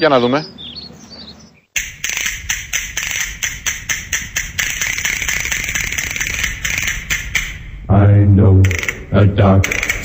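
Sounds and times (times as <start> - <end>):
sharp rhythmic clicks: 1.8 - 7.8, 8.6 - 10.0.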